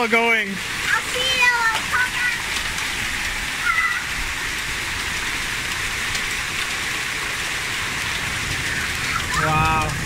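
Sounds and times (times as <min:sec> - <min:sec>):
hail and rain pelting: 0:00.0 - 0:10.0
hailstone ticks: 0:07.8 - 0:10.0.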